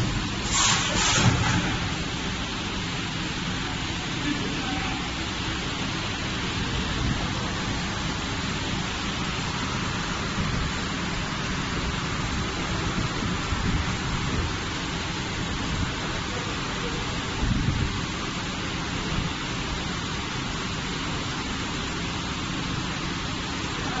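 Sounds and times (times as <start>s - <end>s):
packing machine hissing and rumbling: 0.0s - 24.0s.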